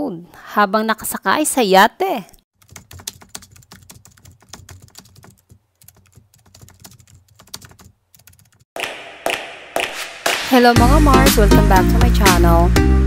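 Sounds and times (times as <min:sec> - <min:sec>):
keyboard typing: 0:02.6 - 0:08.6.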